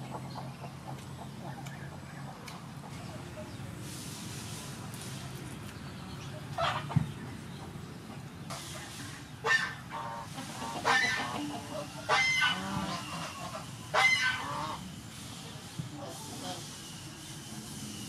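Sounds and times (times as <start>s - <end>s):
poultry calling: 8.7s - 14.9s.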